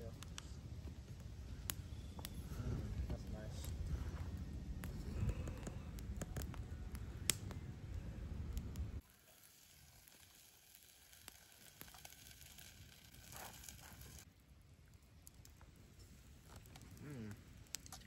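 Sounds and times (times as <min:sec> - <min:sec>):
campfire crackling and popping: 0:00.0 - 0:18.0
low rumble: 0:00.6 - 0:09.0.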